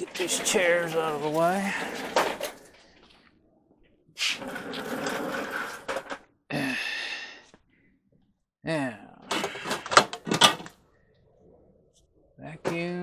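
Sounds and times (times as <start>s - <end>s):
office chairs scraping on concrete: 0.0s - 3.0s, 4.2s - 6.2s.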